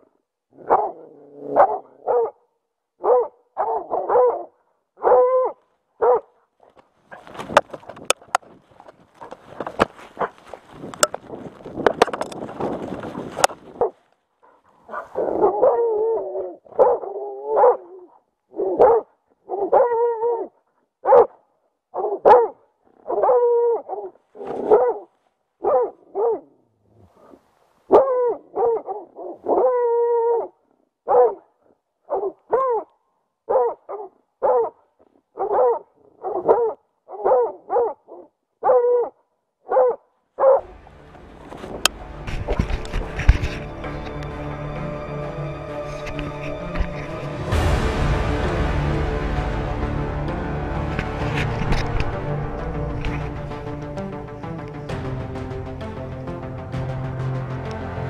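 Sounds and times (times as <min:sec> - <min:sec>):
dog barking loudly: 0:00.6 - 0:02.4, 0:03.0 - 0:06.3, 0:14.5 - 0:18.0, 0:18.6 - 0:20.4, 0:21.0 - 0:21.4, 0:22.0 - 0:26.5, 0:27.9 - 0:30.5, 0:31.1 - 0:31.5, 0:32.1 - 0:32.9, 0:33.5 - 0:34.8, 0:35.4 - 0:39.1, 0:39.7 - 0:40.7.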